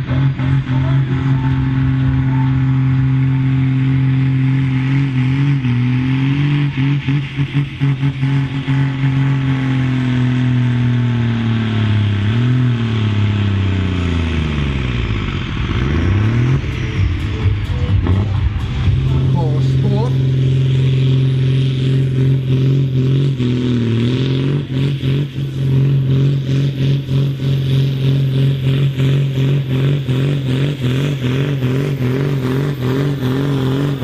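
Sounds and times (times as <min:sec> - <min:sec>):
tractor diesel engine under load: 0:00.0 - 0:34.0.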